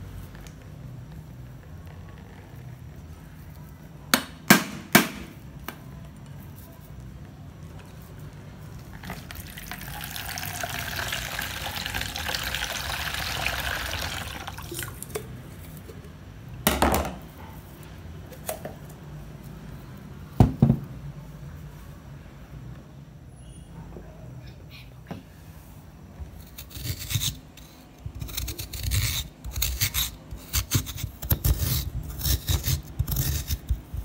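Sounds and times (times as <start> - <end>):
coconut water splashing into bowl: 9.0 - 15.1.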